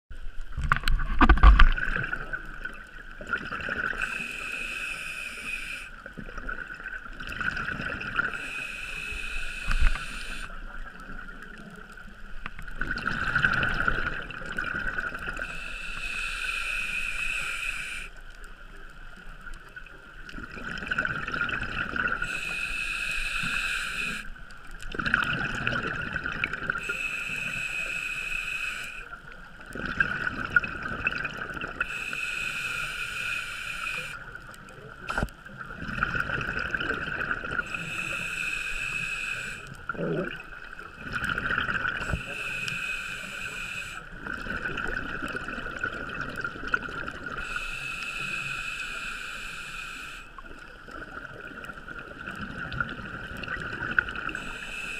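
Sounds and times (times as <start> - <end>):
exhaled bubbles rumbling: 0.4 - 4.2, 6.0 - 8.4, 10.7 - 15.5, 19.6 - 22.3, 24.6 - 26.9, 29.5 - 31.9, 34.3 - 37.9, 39.7 - 42.4, 44.1 - 47.5, 50.4 - 54.6
knocks underwater: 0.5 - 1.9
scuba regulator inhale hiss: 3.9 - 6.0, 8.2 - 10.6, 15.4 - 18.2, 22.2 - 24.4, 26.8 - 29.2, 31.8 - 34.3, 37.6 - 39.8, 41.9 - 44.2, 47.3 - 50.6, 54.2 - 54.9.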